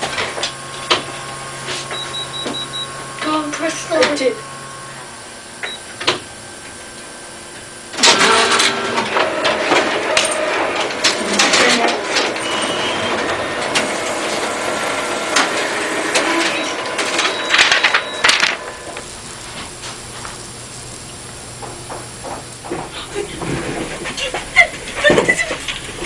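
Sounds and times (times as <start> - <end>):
photocopier running: 0.0 - 26.0.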